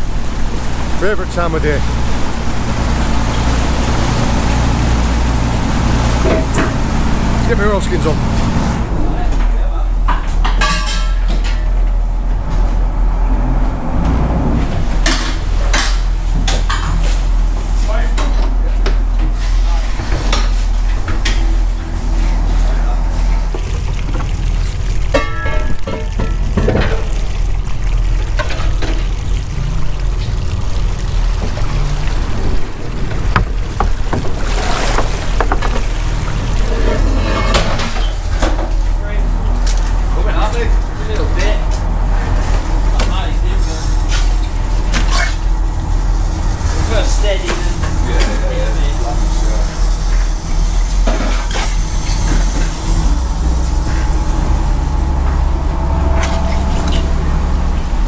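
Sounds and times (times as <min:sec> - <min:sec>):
boat engine running: 0:00.0 - 0:10.6, 0:11.2 - 0:58.0
water sloshing along hull: 0:19.2 - 0:40.1, 0:49.5 - 0:58.0
cage knocking against boat: 0:33.0 - 0:35.9.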